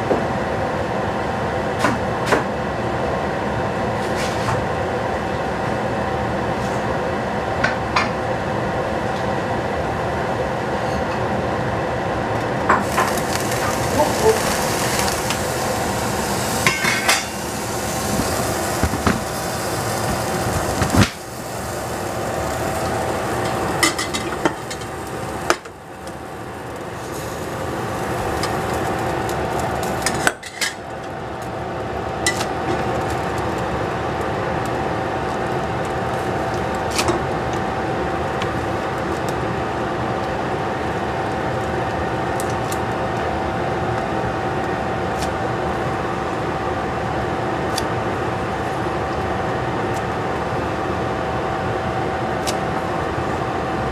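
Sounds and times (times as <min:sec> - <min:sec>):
steady rushing hiss: 0:12.8 - 0:30.1.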